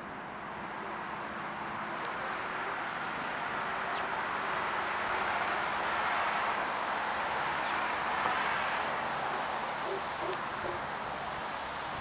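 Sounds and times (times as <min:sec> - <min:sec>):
small birds chirping: 0:02.9 - 0:04.2, 0:06.6 - 0:07.9, 0:09.3 - 0:10.8.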